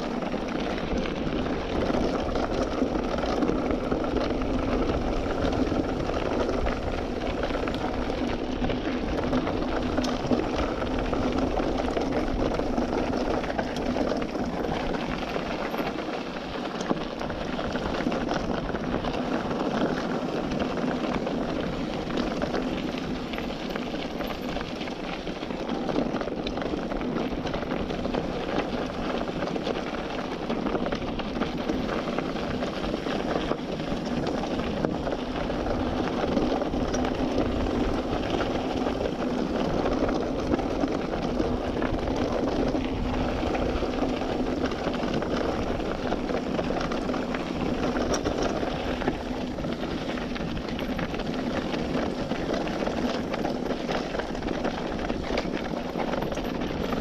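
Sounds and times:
bicycle tyres rolling: 0:00.0 - 0:57.0.

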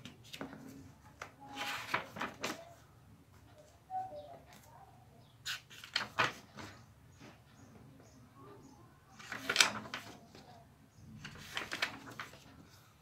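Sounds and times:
paper pages rustling: 0:00.0 - 0:02.8, 0:05.4 - 0:06.8, 0:09.2 - 0:10.5, 0:11.2 - 0:12.9.

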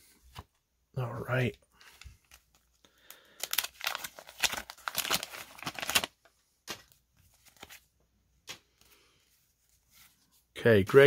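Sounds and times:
wrapper crinkling: 0:01.9 - 0:07.8
paper wrapper tearing: 0:03.4 - 0:06.3.

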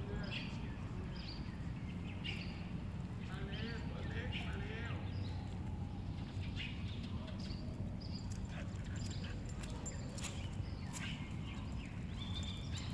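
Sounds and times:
dog claws clicking on concrete: 0:08.2 - 0:11.4.

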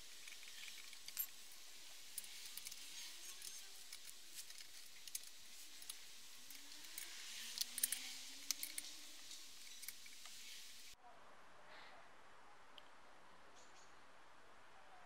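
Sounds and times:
faint hiss: 0:00.0 - 0:11.0
hex key clicking on metal bolts: 0:02.2 - 0:10.3.

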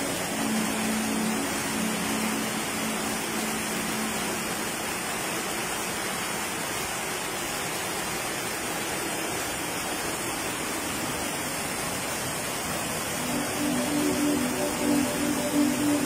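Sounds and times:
flood water rushing: 0:00.0 - 0:16.0.

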